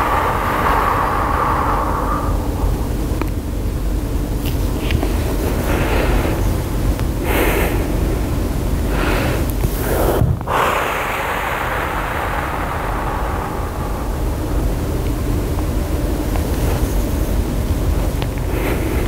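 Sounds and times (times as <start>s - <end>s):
woman breathing hard: 0.0s - 3.2s, 8.8s - 15.0s
low room rumble: 0.0s - 19.0s.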